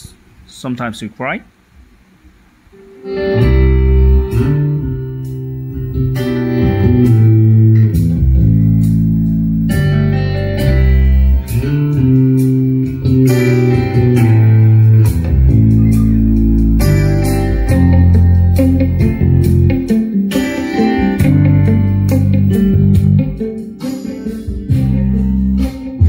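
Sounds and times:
guitar song with heavy bass: 0:02.7 - 0:26.0.

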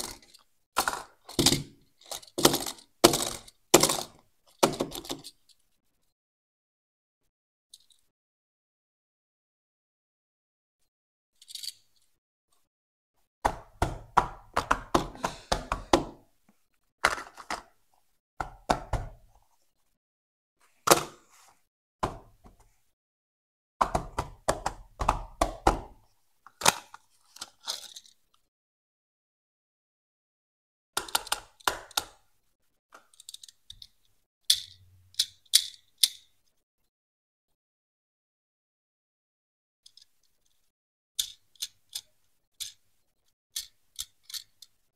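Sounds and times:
toy car clicking: 0:02.0 - 0:04.1, 0:33.0 - 0:33.9, 0:34.5 - 0:36.3, 0:41.2 - 0:42.8, 0:43.6 - 0:44.8.

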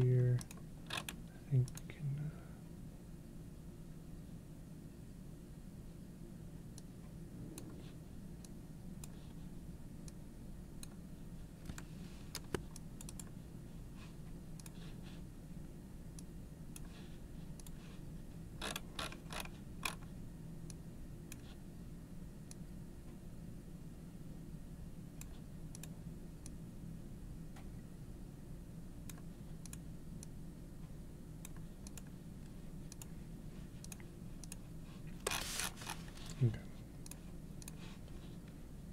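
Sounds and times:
steady low hum: 0:00.0 - 0:38.9
computer mouse clicking: 0:00.4 - 0:01.9, 0:11.6 - 0:13.4, 0:14.6 - 0:14.9, 0:17.6 - 0:17.8, 0:25.2 - 0:26.6, 0:29.1 - 0:30.4, 0:31.4 - 0:32.2, 0:32.8 - 0:33.1, 0:33.8 - 0:34.6, 0:37.0 - 0:37.8.

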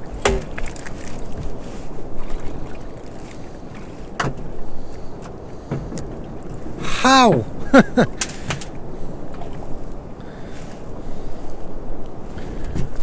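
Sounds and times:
sea washing: 0:00.0 - 0:13.0
wind: 0:00.0 - 0:13.0
clicks of fishing tackle: 0:08.2 - 0:08.8.

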